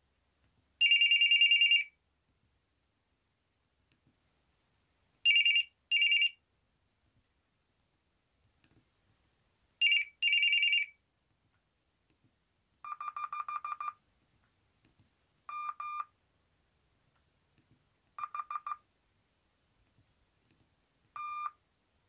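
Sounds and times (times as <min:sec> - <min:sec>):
rapid phone beeps: 0:12.9 - 0:14.0, 0:15.5 - 0:16.1, 0:18.2 - 0:18.8, 0:21.2 - 0:21.6.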